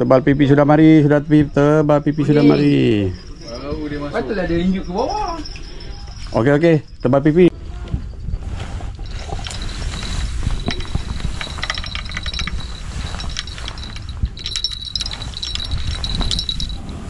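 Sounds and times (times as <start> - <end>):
fishing reel ratcheting: 10.6 - 16.7.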